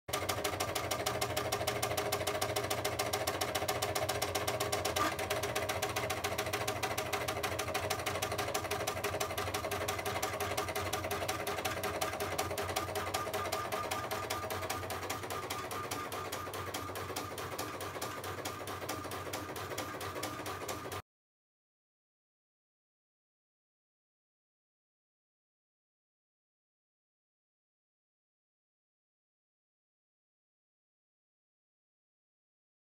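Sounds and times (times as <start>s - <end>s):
plotter rapid ticking: 0.1s - 21.0s
pen plotter motors whirring: 4.7s - 6.2s, 9.8s - 18.9s.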